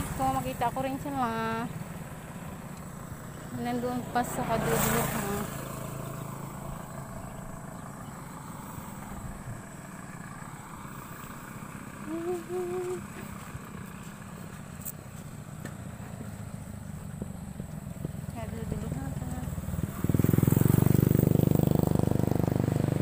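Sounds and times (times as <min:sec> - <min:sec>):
motorcycle engines humming: 0:00.0 - 0:23.0.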